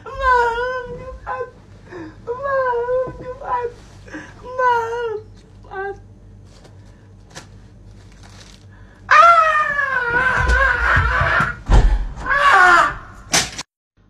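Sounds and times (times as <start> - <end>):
high-pitched wailing cry: 9.1 - 11.6.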